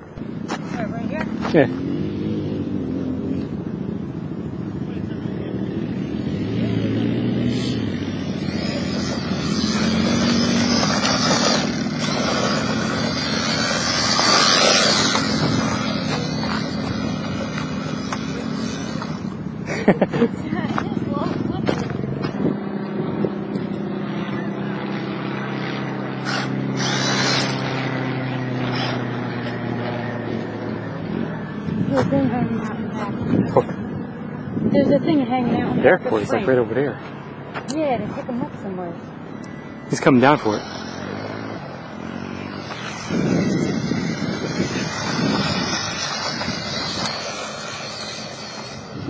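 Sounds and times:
propeller plane droning overhead: 0.0 - 49.0
sand hissing off tyres: 7.4 - 20.0, 26.2 - 27.8, 42.1 - 49.0
toy truck motor whining: 7.5 - 19.9, 26.2 - 28.0, 28.6 - 30.6, 39.7 - 49.0.

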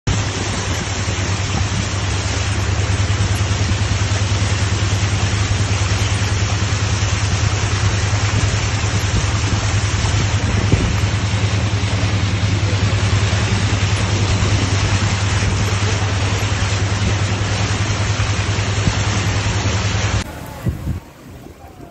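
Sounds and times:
floodwater rushing: 0.0 - 21.9
low pulsing hum: 0.1 - 21.2
heavy rain: 0.1 - 21.9.

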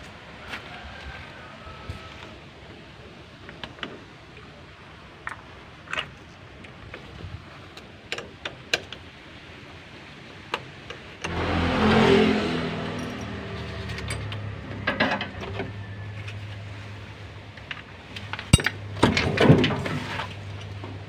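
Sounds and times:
vehicle engine running: 11.2 - 19.0.

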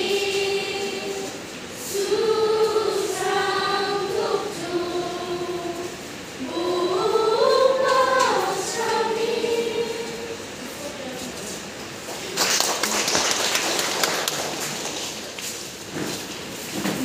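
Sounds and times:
female choir singing: 0.0 - 10.8.

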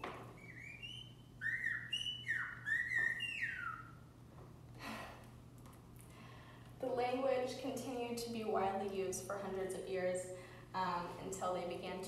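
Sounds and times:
whistled speech through speakers: 0.4 - 3.9.

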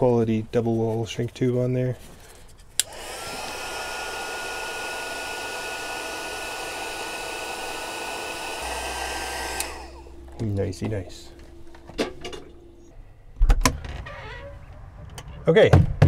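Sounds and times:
heat gun fan whine: 2.7 - 13.0
heat gun switch click: 2.8 - 3.7, 7.5 - 10.1
rush of hot air: 2.8 - 10.2.

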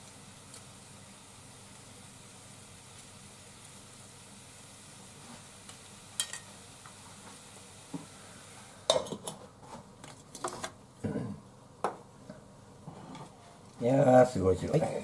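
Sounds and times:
pancake frying in pan: 0.0 - 10.5.

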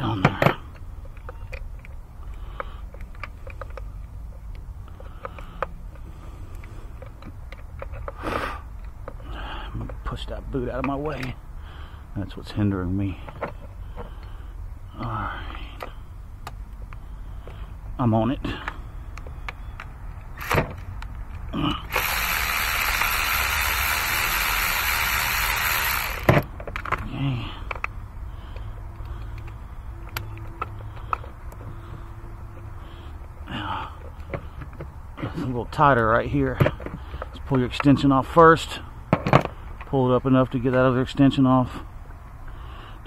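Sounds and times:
clicks of plastic and metal parts: 0.2 - 8.2, 10.7 - 11.4, 13.2 - 14.3, 26.1 - 32.7, 34.0 - 38.0
cordless ratchet motor running: 20.4 - 20.6, 21.9 - 26.4.

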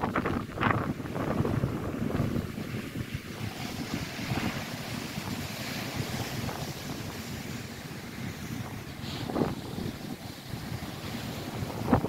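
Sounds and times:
waves breaking on shore: 0.0 - 12.0
wind rumbling on microphone: 0.0 - 12.0.

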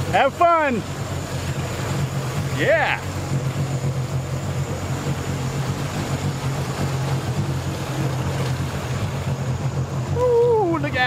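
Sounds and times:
water washing: 0.0 - 11.0
watercraft engines droning: 0.0 - 11.0.

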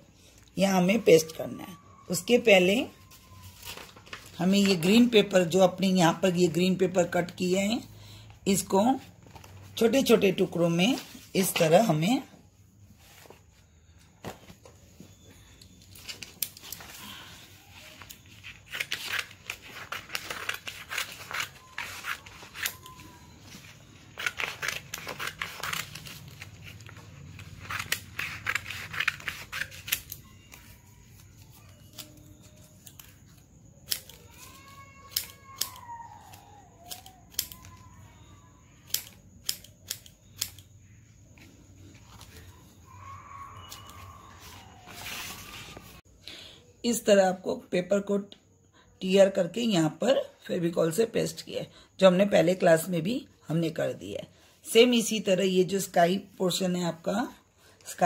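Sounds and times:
scissors snipping paper: 18.1 - 23.2, 24.1 - 37.9.

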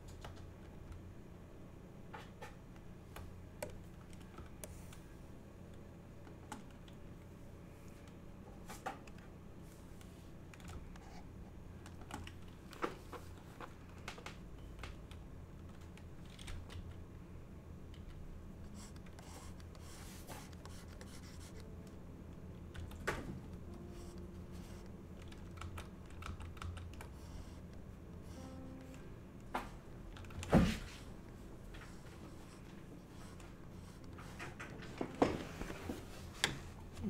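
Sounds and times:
steady low hum: 0.0 - 37.0
computer keyboard clicks: 11.8 - 12.9, 13.9 - 17.0, 24.7 - 27.2.

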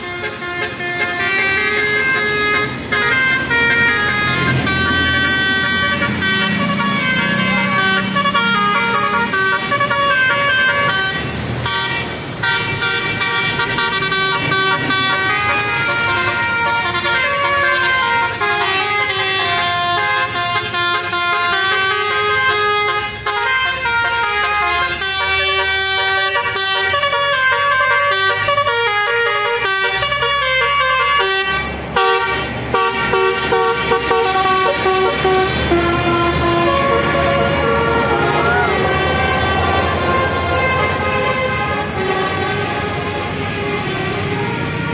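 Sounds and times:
musical air horn playing: 0.0 - 44.9
passing road traffic: 0.0 - 44.9.

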